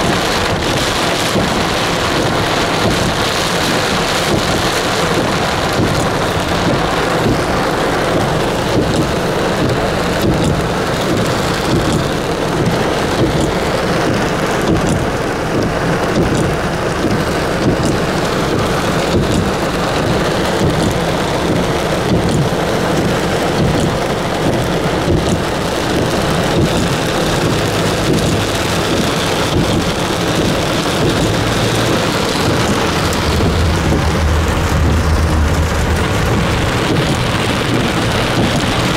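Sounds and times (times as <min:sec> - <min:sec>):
heavy rain pouring: 0:00.0 - 0:38.9.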